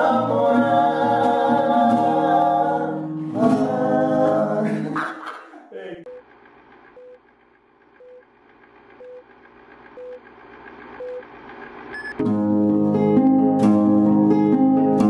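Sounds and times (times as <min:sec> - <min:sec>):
countdown beeps: 0:10.0 - 0:10.2, 0:11.0 - 0:11.2, 0:12.0 - 0:12.2.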